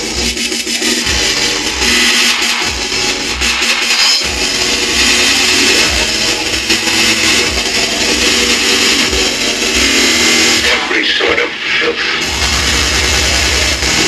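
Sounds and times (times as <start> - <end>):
harsh distorted noise music: 0.0 - 14.0
low kick-drum thumps: 1.0 - 1.9.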